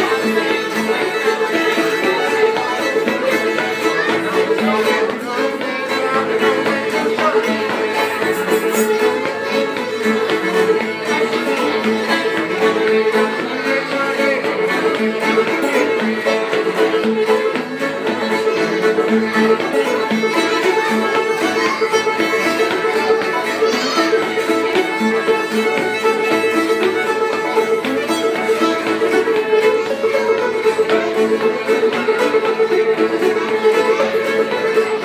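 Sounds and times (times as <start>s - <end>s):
acoustic guitar rhythm: 0.0s - 35.0s
banjo: 0.0s - 35.0s
bowed fiddle melody: 0.0s - 35.0s.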